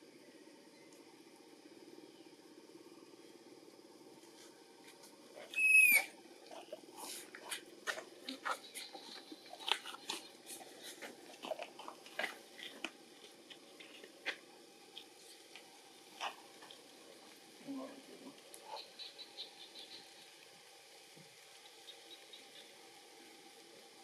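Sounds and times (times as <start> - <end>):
baby monkey squealing: 5.5 - 6.1.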